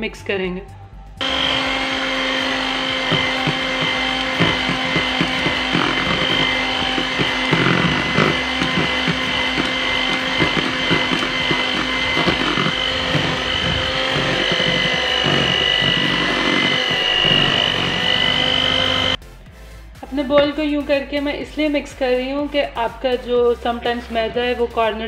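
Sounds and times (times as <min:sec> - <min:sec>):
electric hand mixer humming: 0:01.2 - 0:19.2.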